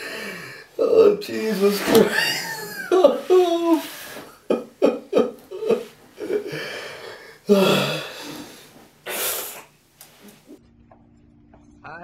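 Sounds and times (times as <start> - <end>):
ragged breathing: 0.0 - 4.6, 5.4 - 10.6
man sobbing: 0.0 - 8.6
sharp rushing breath: 6.5 - 9.7.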